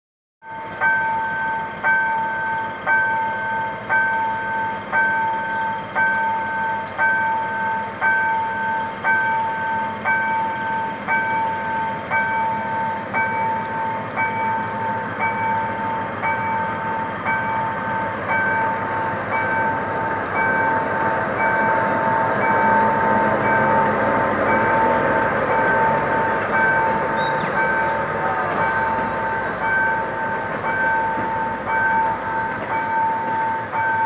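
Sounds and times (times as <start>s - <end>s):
level crossing warning bell: 0.4s - 34.0s.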